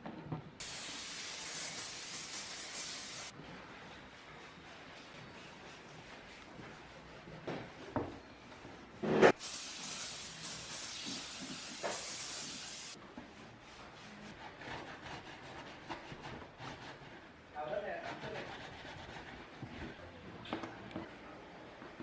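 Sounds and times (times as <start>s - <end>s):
spray hissing: 0.6s - 3.3s, 9.3s - 13.0s.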